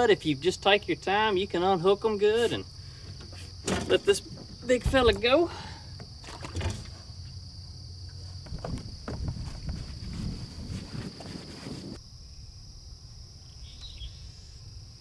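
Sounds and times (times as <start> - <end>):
insects trilling: 0.0 - 15.0
rustling: 8.1 - 12.0.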